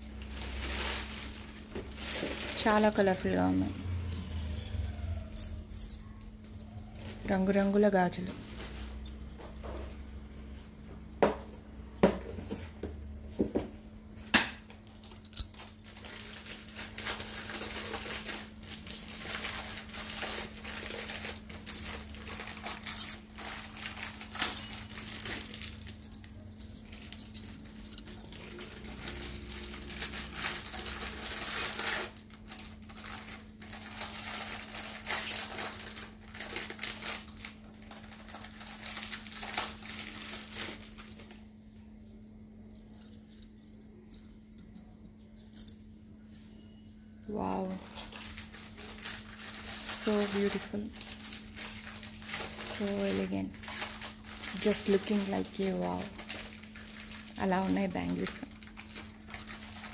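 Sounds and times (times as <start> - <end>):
glass bangles clinking: 0.5 - 7.9, 14.7 - 31.7.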